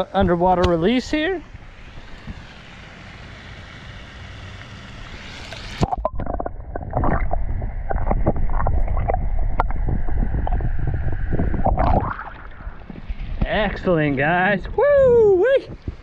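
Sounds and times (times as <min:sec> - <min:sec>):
water sloshing and hissing: 0:00.8 - 0:14.2
underwater knocks and gurgles: 0:05.8 - 0:13.5
low underwater rumble: 0:05.8 - 0:14.0.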